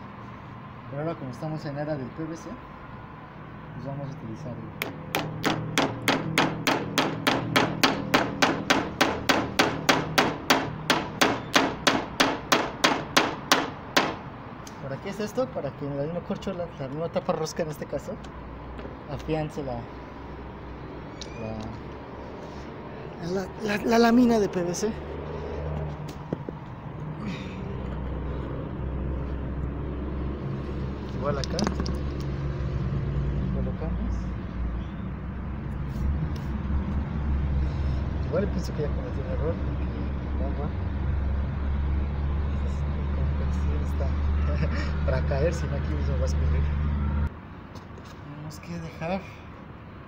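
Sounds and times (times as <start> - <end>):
vehicle engine rumbling: 3.8 - 48.4
hammer striking nail: 4.8 - 14.2.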